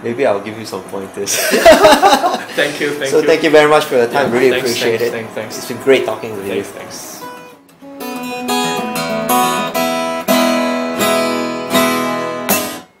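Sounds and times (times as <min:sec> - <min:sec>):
acoustic guitar strumming: 0:03.8 - 0:13.0.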